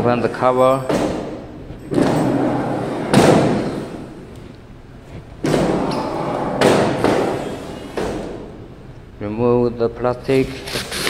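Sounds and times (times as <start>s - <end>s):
machine cover sliding open: 1.8s - 8.6s.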